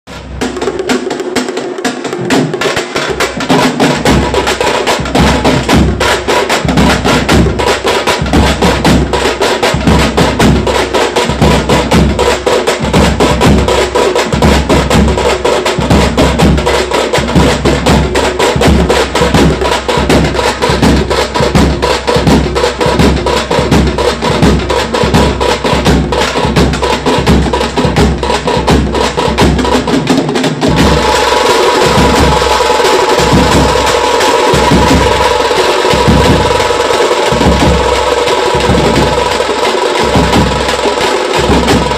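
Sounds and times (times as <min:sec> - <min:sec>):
frame drums beaten with sticks: 0:00.1 - 0:41.9
steady deep beat: 0:00.1 - 0:41.9.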